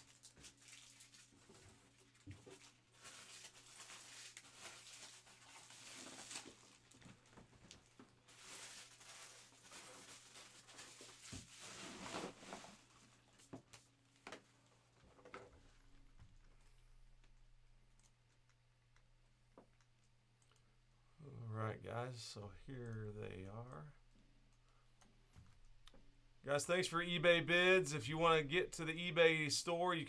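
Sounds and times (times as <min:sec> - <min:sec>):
rustling and shuffling: 0:00.0 - 0:18.6
low steady hum: 0:14.0 - 0:30.0.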